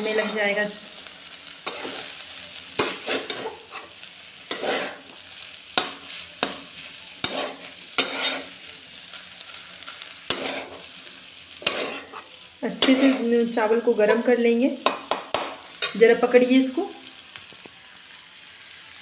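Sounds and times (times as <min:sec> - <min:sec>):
spatula scraping rice in pan: 0:00.0 - 0:00.6, 0:01.6 - 0:02.2, 0:02.8 - 0:13.4
frying hiss: 0:00.0 - 0:19.0.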